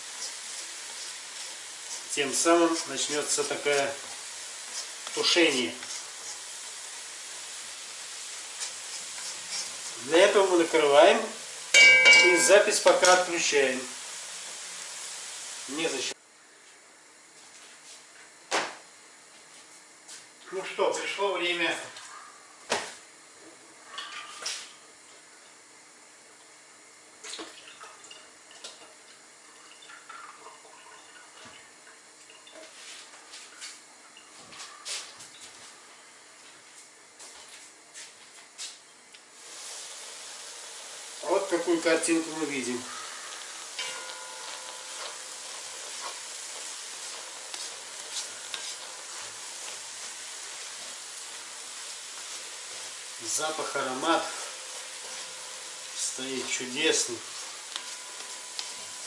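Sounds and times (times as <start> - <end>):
meat sizzling in a pot: 0.0 - 16.2, 38.6 - 59.0.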